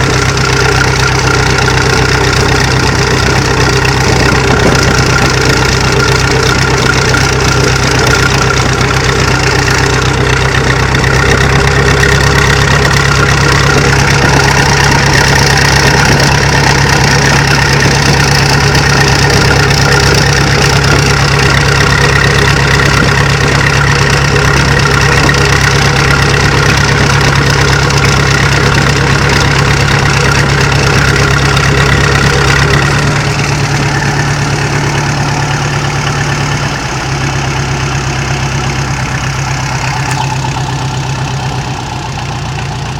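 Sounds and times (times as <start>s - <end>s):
tractor diesel engine running: 0.0s - 42.9s.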